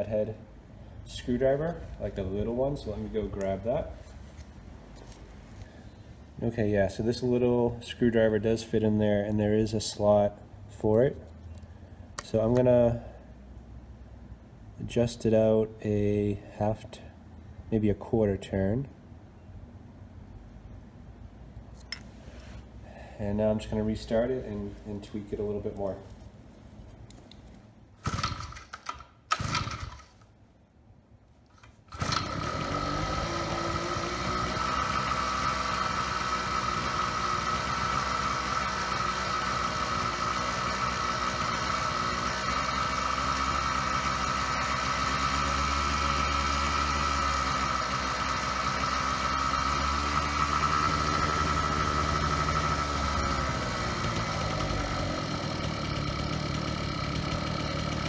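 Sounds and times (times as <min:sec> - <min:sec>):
small gas engine running fast: 0:28.0 - 0:28.6, 0:29.4 - 0:30.0, 0:31.9 - 0:58.0.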